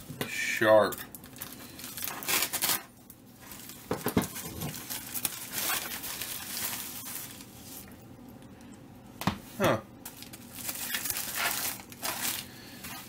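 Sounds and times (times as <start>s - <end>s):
paper mailer crinkling: 0.8s - 8.0s, 10.1s - 13.0s.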